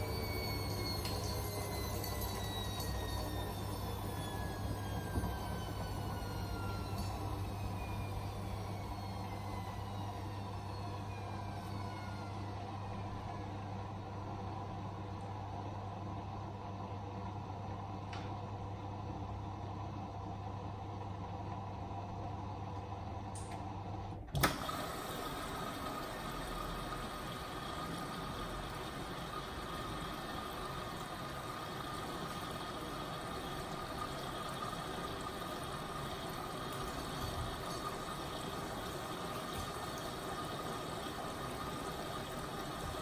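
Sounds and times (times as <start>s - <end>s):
washing machine tumbling hum: 0.0s - 43.0s
water filling hiss: 24.5s - 43.0s.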